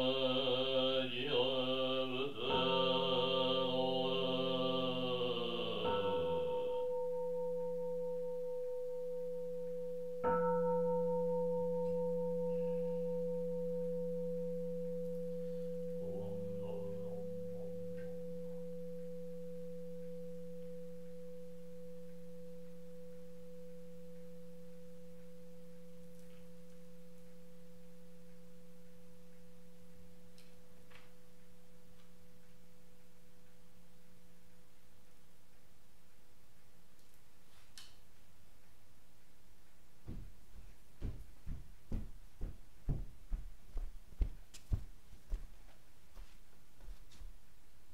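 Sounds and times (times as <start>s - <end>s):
bowl bell ringing: 2.4s - 31.3s.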